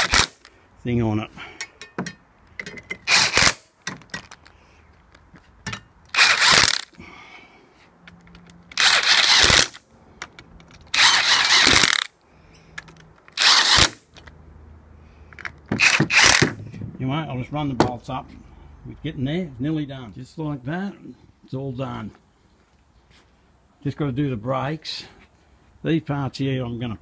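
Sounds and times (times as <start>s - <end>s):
socket ratchet ratcheting: 1.6s - 4.5s, 6.1s - 6.9s, 8.1s - 12.1s, 12.8s - 14.3s, 15.4s - 16.5s.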